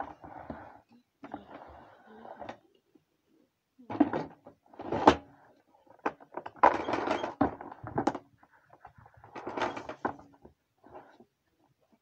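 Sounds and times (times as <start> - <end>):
plastic scraping: 3.9 - 11.2
plastic knocks and clicks: 6.0 - 10.4.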